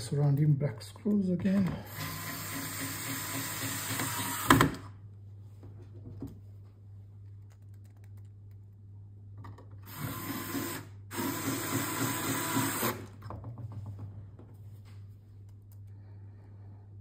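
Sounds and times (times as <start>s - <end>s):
electric screwdriver running: 1.9s - 4.8s, 9.9s - 13.0s.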